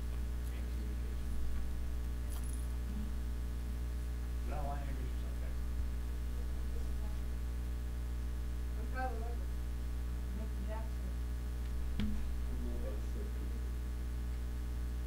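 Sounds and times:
electrical mains hum: 0:00.0 - 0:15.0
metallic jingle: 0:02.3 - 0:02.8.

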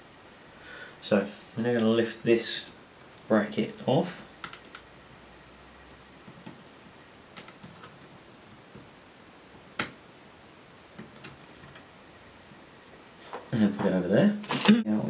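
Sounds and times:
faint clicks and light taps: 0:07.4 - 0:08.9.

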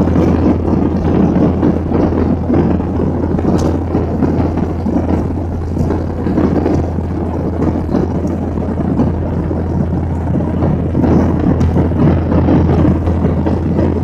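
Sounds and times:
airflow rushing: 0:00.0 - 0:14.0
low engine drone: 0:00.0 - 0:14.0.

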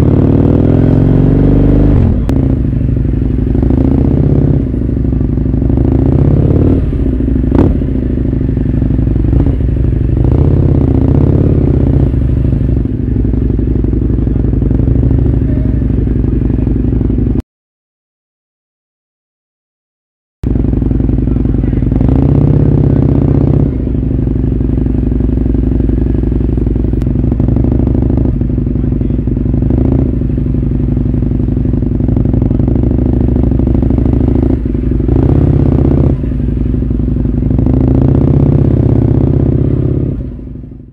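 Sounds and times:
motorcycle engine running: 0:00.0 - 0:17.4, 0:20.4 - 0:40.9.

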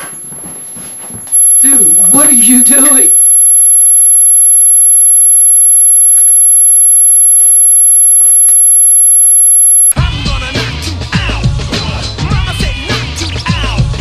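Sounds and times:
high-pitched electronic tone: 0:01.3 - 0:10.0.

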